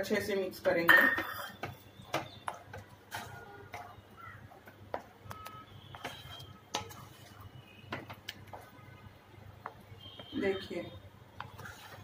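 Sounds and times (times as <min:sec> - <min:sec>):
spatula scraping metal pan: 0:05.9 - 0:07.7, 0:11.4 - 0:12.0.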